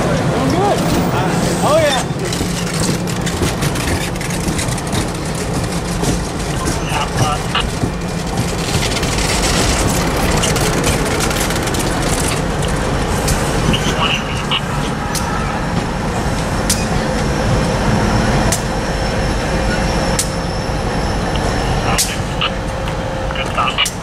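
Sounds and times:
train wheels rumbling on rails: 0:00.0 - 0:24.0
sharp rail clicks: 0:01.8 - 0:13.8, 0:18.5 - 0:18.7.

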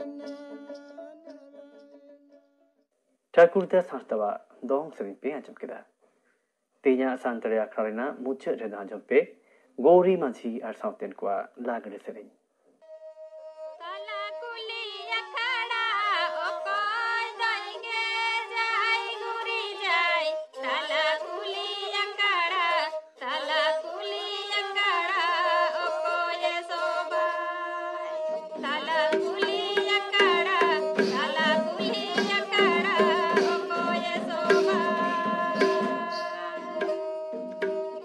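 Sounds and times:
women singing folk song: 0:13.7 - 0:38.0.

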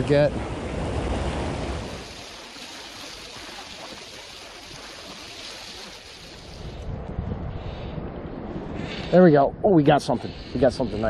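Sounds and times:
creek water rushing: 0:00.0 - 0:06.9.

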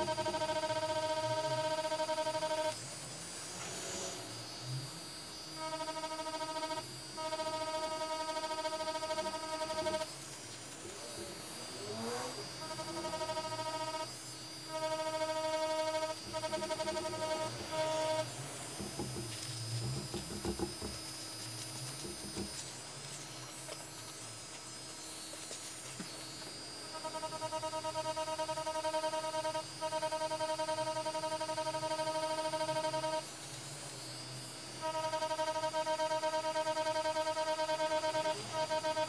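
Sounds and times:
tattoo machine buzzing: 0:00.0 - 0:39.0.

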